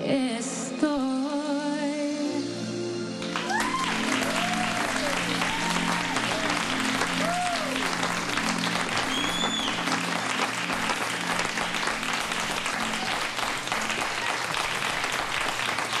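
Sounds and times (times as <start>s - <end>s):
soft music with low notes: 0.0s - 14.1s
audience applauding: 3.2s - 16.0s
rising and falling whistle: 9.1s - 9.9s.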